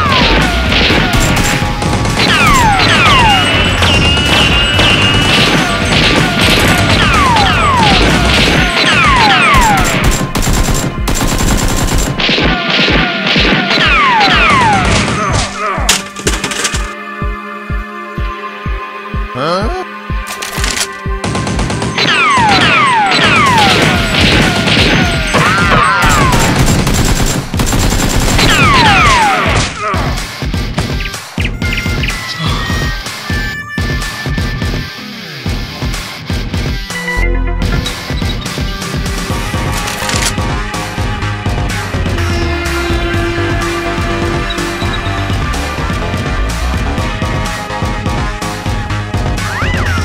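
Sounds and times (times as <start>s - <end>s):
machine-gun sound effects: 0.0s - 15.4s, 20.3s - 29.8s
action background music: 0.0s - 50.0s.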